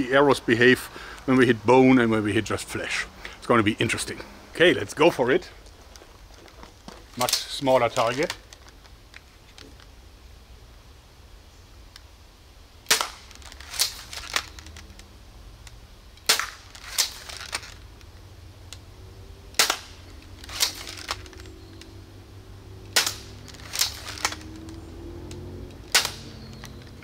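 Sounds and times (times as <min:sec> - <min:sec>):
crossbow action clacks: 0:22.8 - 0:27.0.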